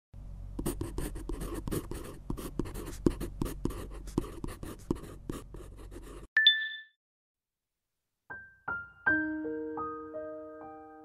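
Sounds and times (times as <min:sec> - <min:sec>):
pen scratching on paper: 0:00.6 - 0:06.3.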